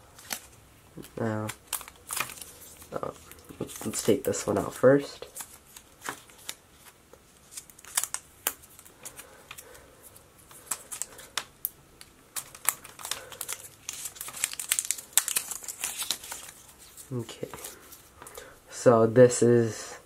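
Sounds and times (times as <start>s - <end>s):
packaging crinkling: 0.1s - 18.1s.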